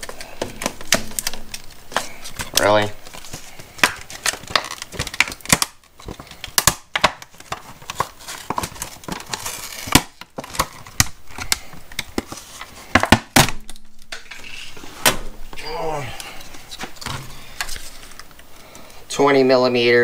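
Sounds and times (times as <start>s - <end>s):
packaging crinkling: 0.0s - 14.8s.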